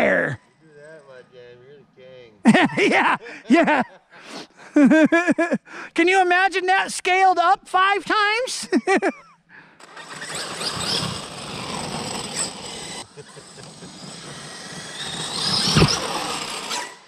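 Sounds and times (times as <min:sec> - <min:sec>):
rc buggy tyre and drivetrain noise: 0:09.8 - 0:17.0.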